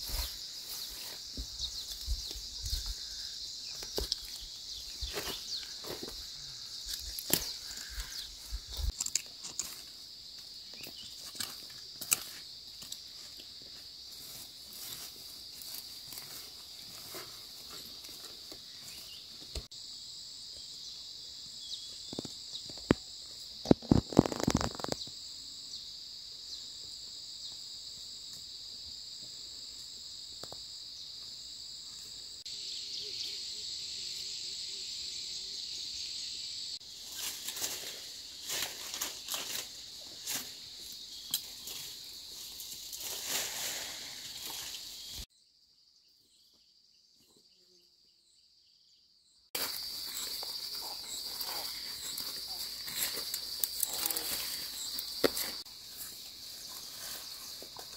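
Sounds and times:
insects chorus: 0:00.0 - 0:57.9
weeds rustling and crackling: 0:23.7 - 0:25.0, 0:36.9 - 0:45.2, 0:49.6 - 0:57.9.

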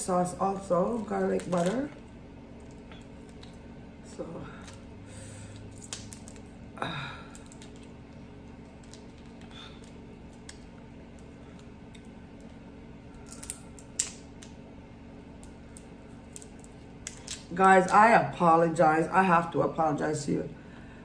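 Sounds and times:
faint steady hum: 0:00.0 - 0:21.0
shrimp shells cracking: 0:00.9 - 0:02.0, 0:05.6 - 0:06.5, 0:07.2 - 0:12.5, 0:13.1 - 0:14.6, 0:15.4 - 0:17.5.

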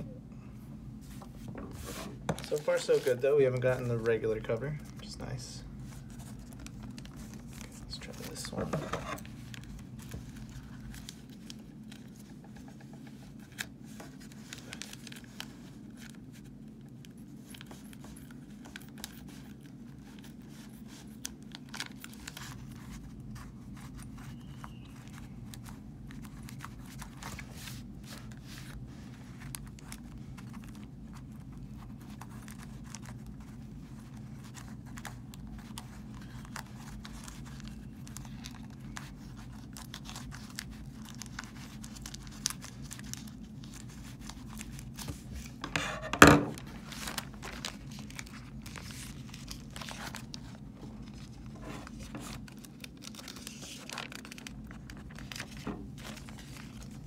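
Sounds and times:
low steady hum: 0:00.0 - 0:57.0
plastic bag crackling: 0:13.2 - 0:45.7, 0:46.5 - 0:57.0.

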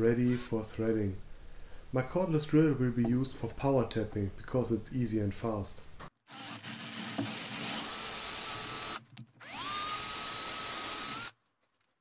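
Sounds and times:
cordless drill motor whining: 0:06.3 - 0:11.3.

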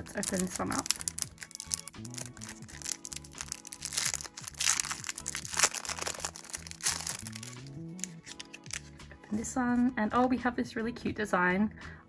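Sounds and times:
plastic wrapper crinkling: 0:00.0 - 0:09.0
soft background music: 0:00.0 - 0:12.0.

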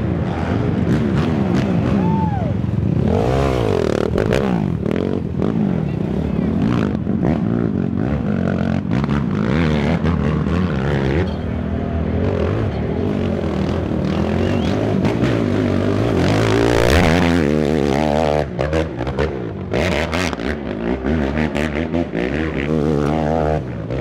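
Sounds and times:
quad engines revving: 0:00.0 - 0:24.0.

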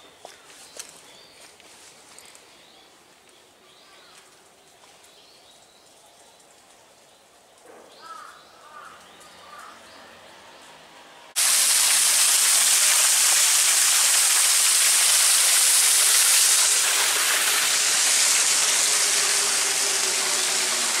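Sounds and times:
waterfall splashing over rocks: 0:11.4 - 0:21.0.

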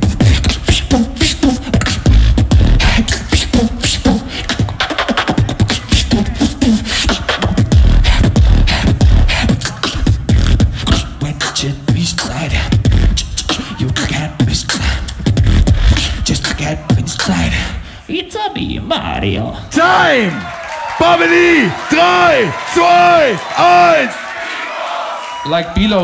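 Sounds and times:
person beatboxing: 0:00.0 - 0:18.2.

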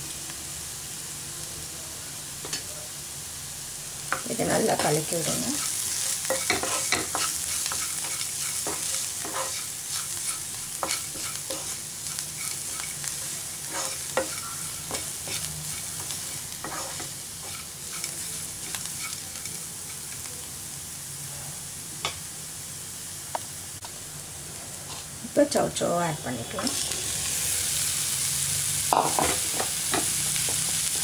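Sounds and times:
oil sizzling: 0:00.0 - 0:31.0
spatula scraping frying pan: 0:04.5 - 0:20.2.

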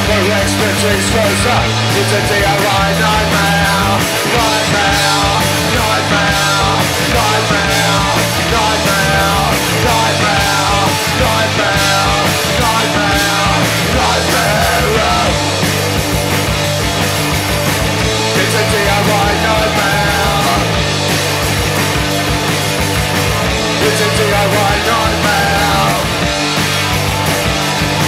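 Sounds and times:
person singing: 0:00.0 - 0:15.5, 0:18.3 - 0:20.8, 0:23.7 - 0:26.2
punk rock band playing live: 0:00.0 - 0:28.0.

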